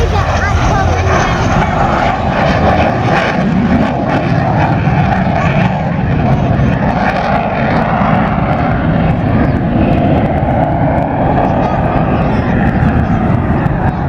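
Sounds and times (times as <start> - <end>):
loud jet engine roar: 0.0 - 14.0.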